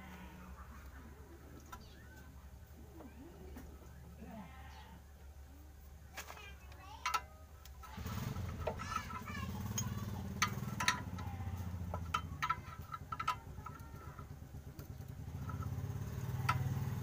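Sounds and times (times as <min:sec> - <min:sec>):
sharp metallic clicks and taps: 0:06.7 - 0:17.0
small engine humming: 0:07.8 - 0:17.0.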